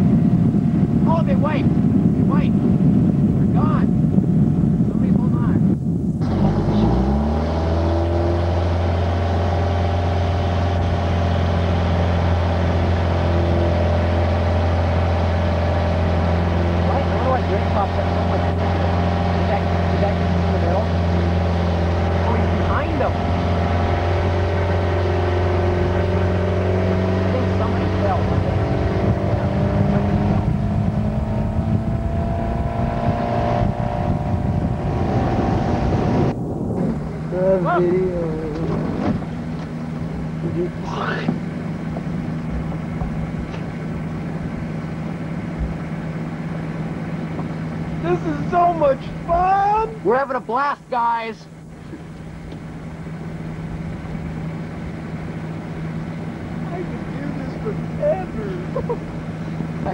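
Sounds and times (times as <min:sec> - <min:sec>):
wind buffeting microphone: 0:00.0 - 0:49.8
motorboat engine running: 0:00.0 - 0:59.9
water rushing along hull: 0:07.6 - 0:29.7.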